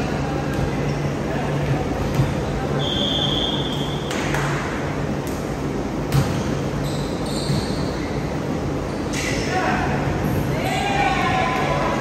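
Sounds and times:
volleyball hits echoing: 3.6 - 6.7
sneakers squeaking on floor: 6.1 - 9.3.

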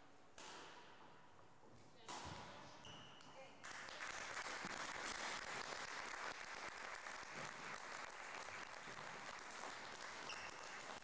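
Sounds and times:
audience applause: 3.8 - 11.0.

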